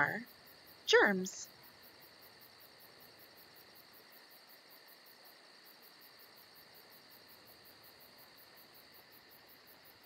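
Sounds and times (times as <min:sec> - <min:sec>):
faint high-pitched pulsing noise: 0:00.0 - 0:10.0.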